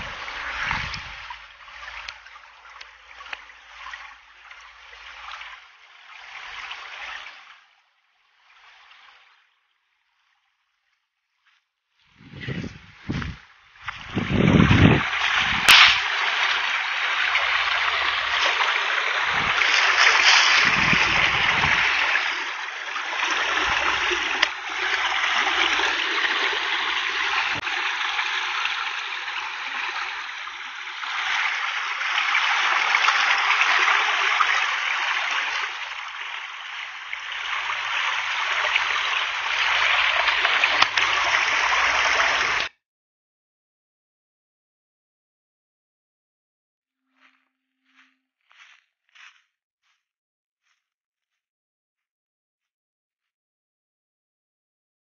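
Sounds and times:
brook rushing over rocks: 12.2 - 42.7.

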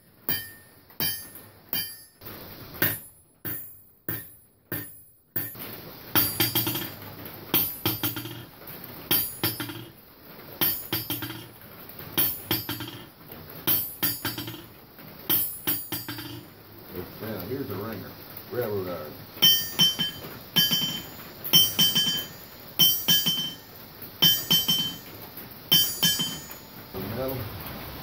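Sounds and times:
background noise: 0.0 - 28.0
hammer striking metal anvil: 0.3 - 8.5, 9.1 - 10.0, 10.6 - 11.6, 12.2 - 13.1, 13.7 - 14.7, 15.3 - 16.5, 19.4 - 26.7.

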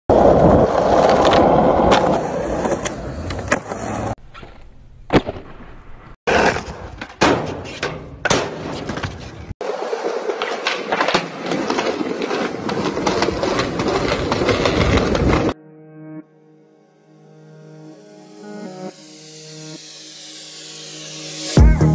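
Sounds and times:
skateboard rolling on steel slide: 0.1 - 4.2, 8.8 - 15.6
skateboard wheels rolling: 0.1 - 15.6.

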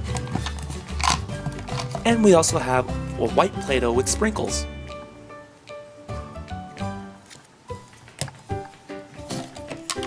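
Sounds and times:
light instrumental music: 0.0 - 10.0.

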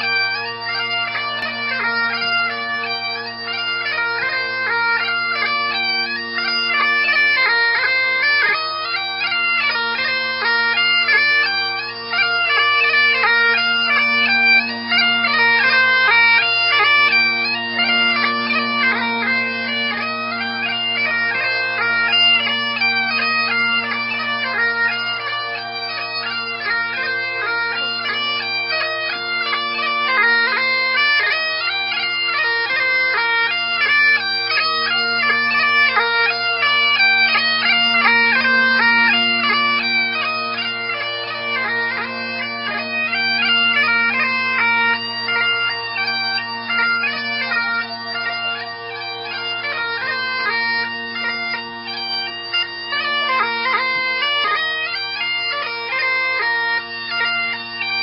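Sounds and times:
bagpipes playing a tune: 0.0 - 58.0.

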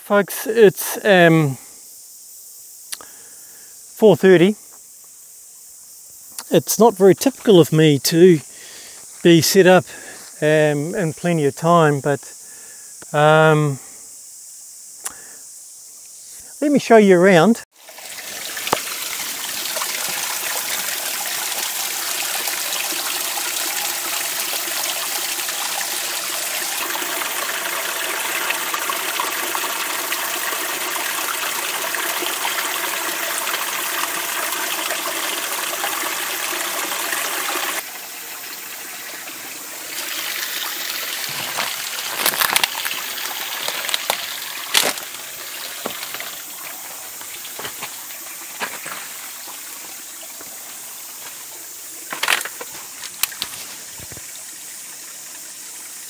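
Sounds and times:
stream splashing over rocks: 17.7 - 56.0
sharp knocks and rustles: 41.3 - 42.9, 47.2 - 48.0, 48.6 - 49.2, 52.1 - 54.3.

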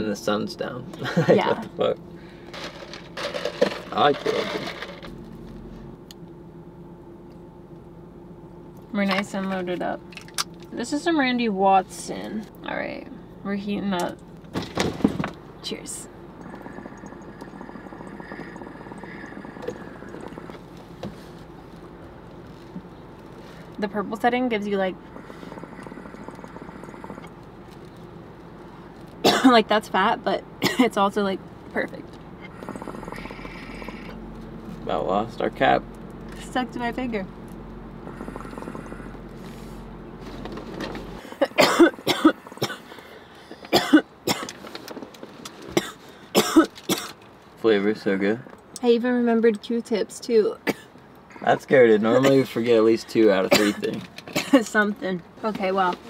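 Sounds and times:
water bubbling in a pipe: 16.4 - 20.6, 25.1 - 27.3, 32.5 - 34.2
person coughing harshly: 29.2 - 29.6, 30.6 - 30.9, 41.3 - 42.9, 43.7 - 44.5, 45.8 - 47.2, 50.6 - 50.9, 53.5 - 54.6.

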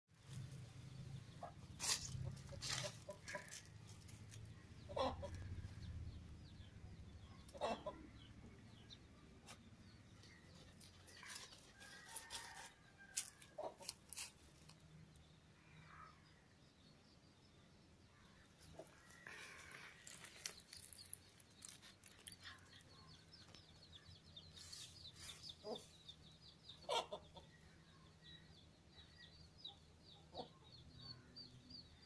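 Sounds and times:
chickens clucking: 1.4 - 5.8, 7.4 - 8.3, 26.8 - 27.5
dog scratching in stony dirt: 1.7 - 4.4, 10.8 - 14.7
dog crunching on lizard: 20.0 - 23.0.

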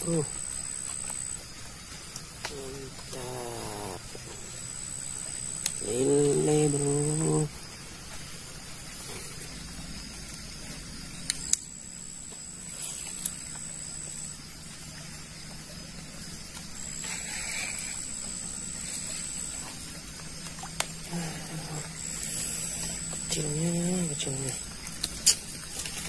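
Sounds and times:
low steady hum: 0.0 - 26.0
night insects trilling: 0.0 - 26.0.

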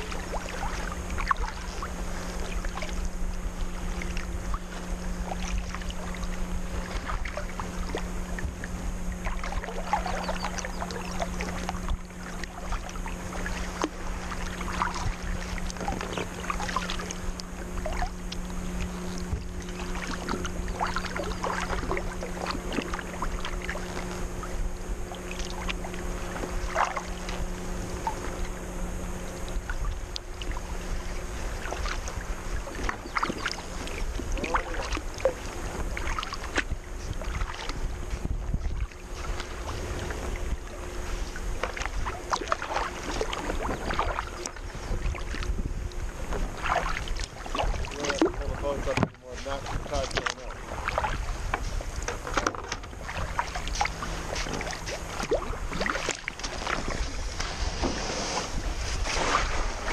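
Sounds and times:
faint low hum: 0.0 - 59.9
light wind: 0.0 - 59.9
paddle splashes: 0.0 - 59.9
water lapping at hull: 0.0 - 59.9
wash of water: 53.0 - 59.9.

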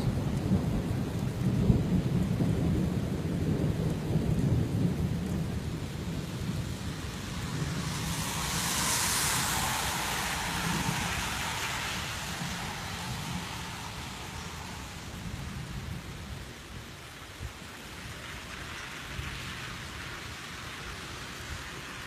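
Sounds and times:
thunder rumbling: 0.0 - 17.5
steady rain: 0.0 - 22.0.

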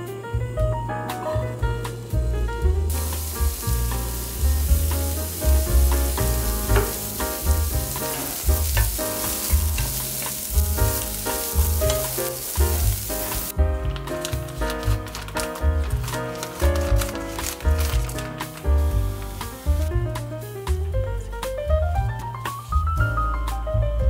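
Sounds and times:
background music with bass beat: 1.6 - 17.2
vegetables sizzling in frying pan: 2.9 - 13.6, 14.2 - 19.9.

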